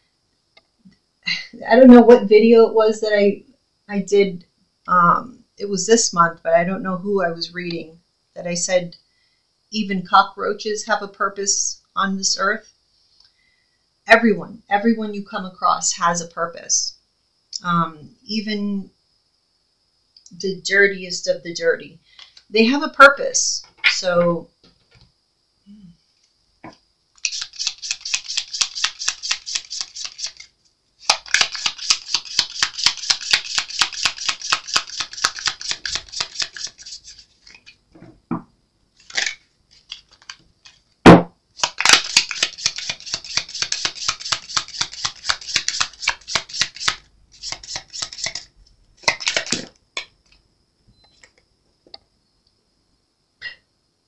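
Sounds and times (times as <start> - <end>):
cards shuffling: 27.2 - 37.8, 39.0 - 40.9, 41.6 - 50.4
sharp knock: 41.0 - 41.4.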